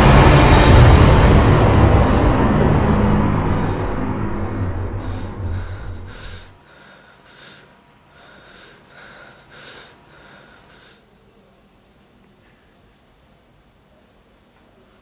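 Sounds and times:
deep low rumble: 0.0s - 6.6s
heavy breathing pants: 1.6s - 11.1s.

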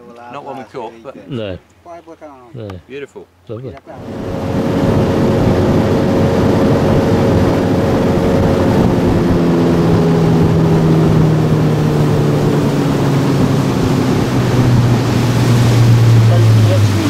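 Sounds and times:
rushing water noise: 3.9s - 17.0s
outboard motor running: 4.0s - 17.0s.

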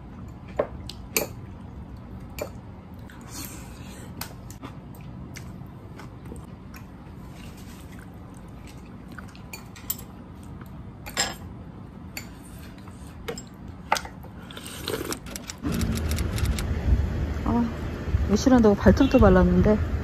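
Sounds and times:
low hum: 14.6s - 20.0s.

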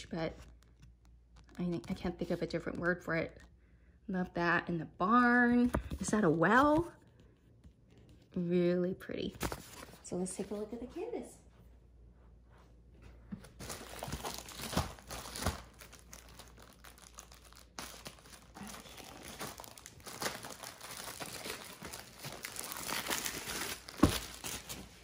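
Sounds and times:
paper and plastic crinkling: 13.4s - 25.0s.

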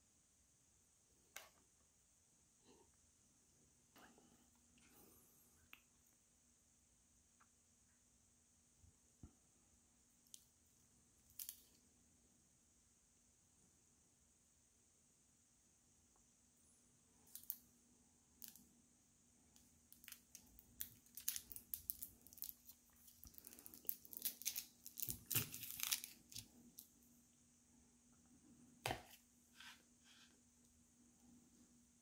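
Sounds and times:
plastic wrapper crinkling: 20.0s - 26.9s.

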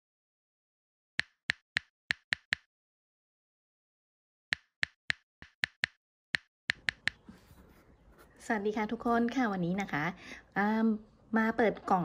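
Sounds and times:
keyboard key clicks: 4.5s - 7.2s.

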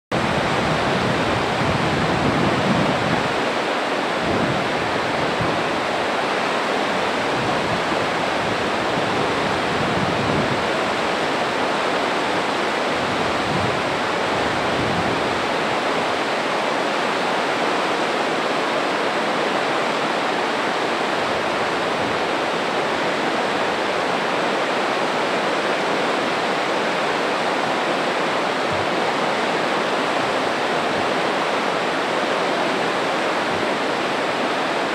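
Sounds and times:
waterfall rushing: 0.1s - 34.9s.

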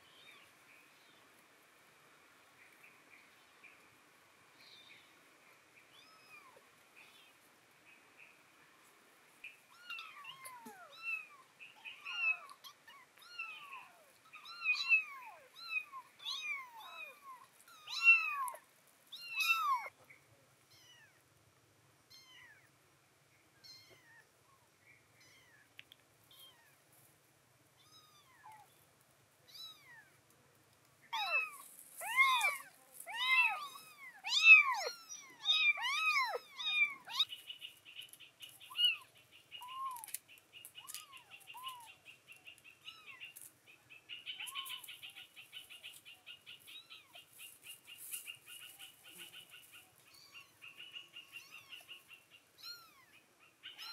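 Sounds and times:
kittens meowing: 9.7s - 19.9s, 23.6s - 24.3s, 25.2s - 25.6s, 27.8s - 28.7s, 29.5s - 30.1s, 31.1s - 37.4s, 38.6s - 40.2s, 40.8s - 42.0s, 50.1s - 52.0s, 52.6s - 53.9s.

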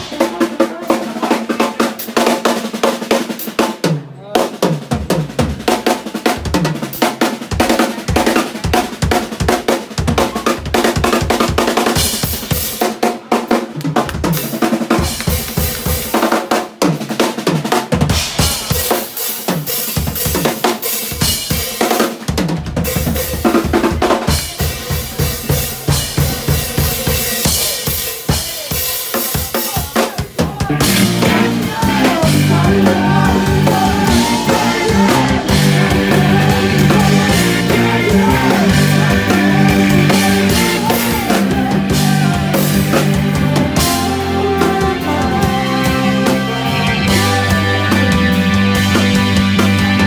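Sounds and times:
drum kit: 0.0s - 50.0s
live band playing: 0.0s - 50.0s.

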